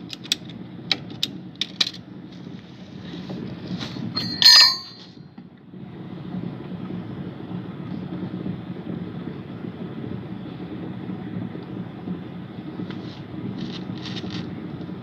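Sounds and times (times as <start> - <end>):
steady low rumble: 0.5 - 15.0
metal clank with bell-like ring: 4.2 - 5.2.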